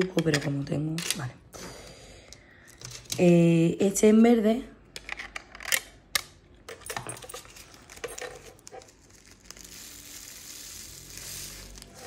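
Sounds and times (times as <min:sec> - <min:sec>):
plastic bag crinkling: 0:07.5 - 0:12.0
beads pouring onto plastic tray: 0:07.6 - 0:12.0.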